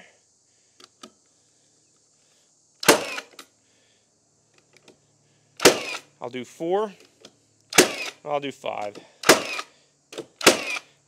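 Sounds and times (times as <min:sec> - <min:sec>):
nail gun firing bang: 0:02.8 - 0:03.4, 0:05.6 - 0:06.0, 0:07.7 - 0:08.2, 0:09.2 - 0:10.8.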